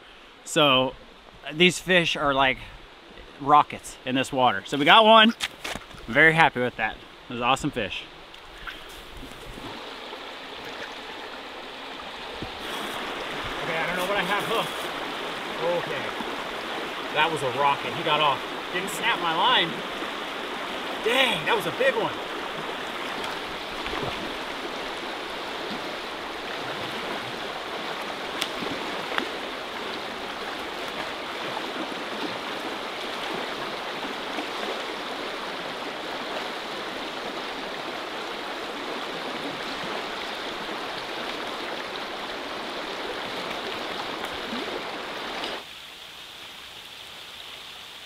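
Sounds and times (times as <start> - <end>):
river rushing over rocks: 9.5 - 45.7.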